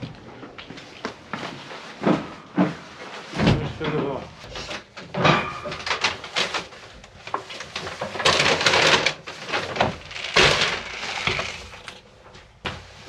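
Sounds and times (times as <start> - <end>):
paper bags rustling: 5.6 - 12.0.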